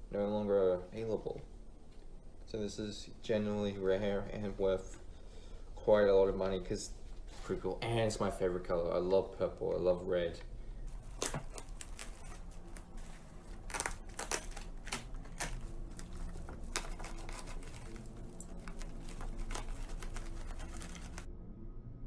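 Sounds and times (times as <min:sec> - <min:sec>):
bubble wrap crinkling and crackling: 0:10.8 - 0:21.3.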